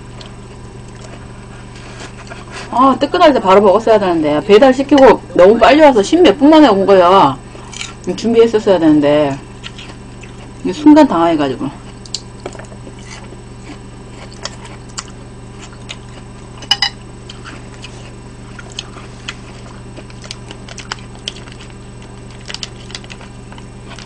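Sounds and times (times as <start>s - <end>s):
steady low hum: 0.0s - 24.0s
chewing clicks: 9.6s - 10.5s, 11.9s - 16.3s, 17.2s - 24.0s.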